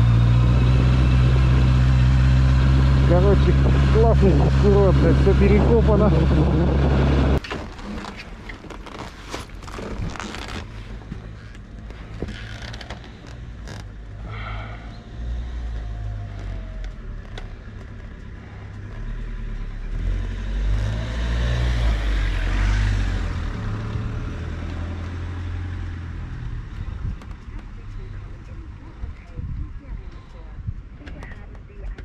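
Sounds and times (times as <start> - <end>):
motorcycle engine at low revs: 0.0 - 7.4
wind noise: 2.7 - 7.4, 29.0 - 31.3.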